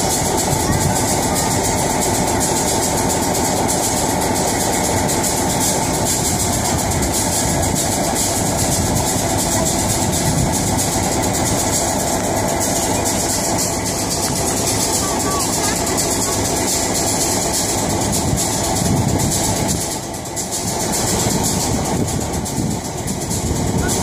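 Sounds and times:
railway turntable rumbling: 0:00.0 - 0:24.0.

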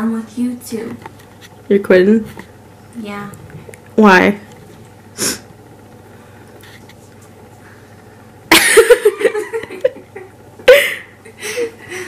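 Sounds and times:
young woman laughing: 0:08.5 - 0:12.0.

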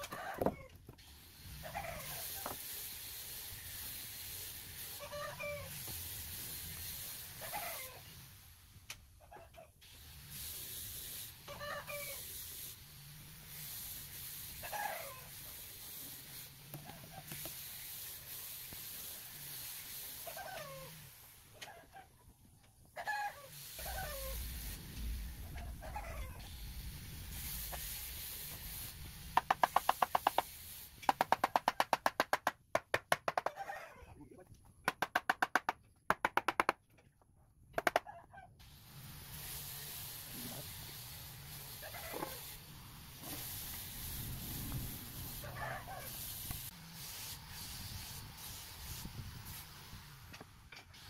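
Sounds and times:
faint hiss: 0:01.0 - 0:09.1, 0:09.8 - 0:32.0, 0:38.6 - 0:51.0
chickens clucking: 0:25.5 - 0:26.4.

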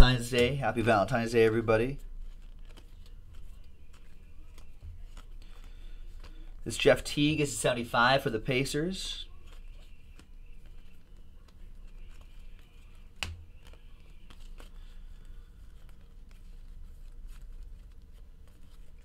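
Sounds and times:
low steady hum: 0:00.0 - 0:19.0
cards sliding and rustling: 0:01.9 - 0:19.0.

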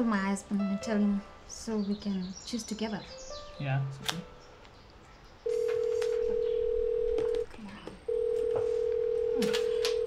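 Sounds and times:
phone ringback tone beeps: 0:05.5 - 0:07.4, 0:08.1 - 0:10.0.

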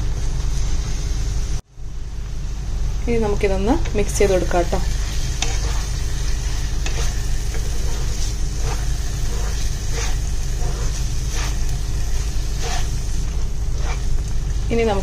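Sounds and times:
light sizzle: 0:00.0 - 0:15.0
spatula scraping pan: 0:04.8 - 0:14.2.

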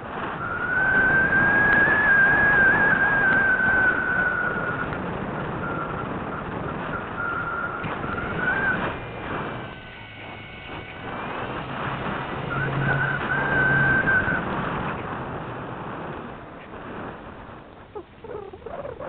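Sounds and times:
air rushing past camera: 0:00.0 - 0:19.0
thin high whistle: 0:00.3 - 0:14.6.

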